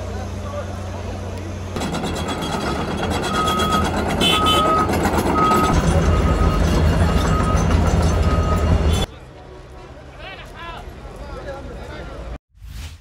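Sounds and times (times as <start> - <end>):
excavator diesel engine rumbling: 0.0 - 12.4
high warning alarm beeps: 2.5 - 8.9.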